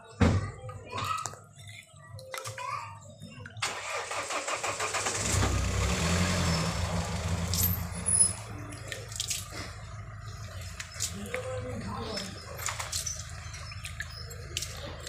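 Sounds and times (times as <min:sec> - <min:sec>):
vehicle engine on the road: 0:03.6 - 0:15.0.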